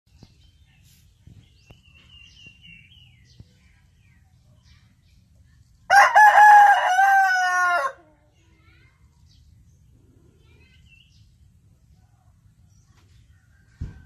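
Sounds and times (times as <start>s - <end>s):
rooster crowing: 5.9s - 8.1s.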